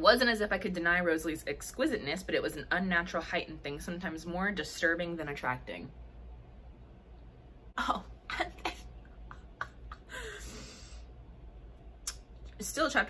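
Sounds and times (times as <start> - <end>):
woman coughing: 7.8 - 8.9.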